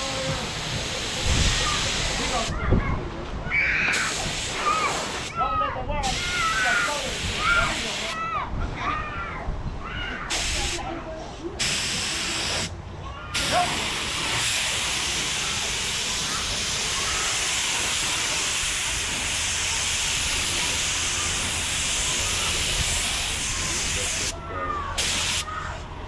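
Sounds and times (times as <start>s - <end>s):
spray gun hissing: 0.0s - 2.5s, 3.9s - 5.3s, 6.0s - 8.2s, 10.3s - 10.8s, 11.6s - 12.7s, 13.4s - 25.5s.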